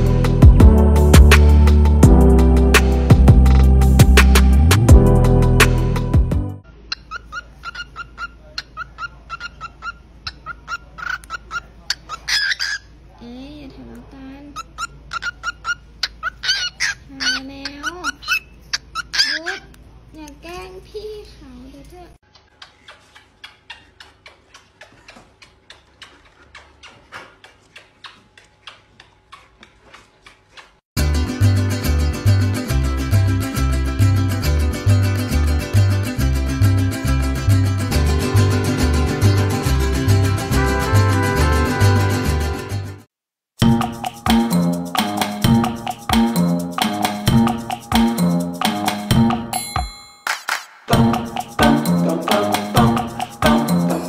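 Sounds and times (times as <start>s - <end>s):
parrot chirping: 6.6s - 13.0s, 14.4s - 19.8s
plucked guitar music: 31.0s - 43.0s, 50.9s - 54.0s
clock-like ticking: 43.6s - 49.4s.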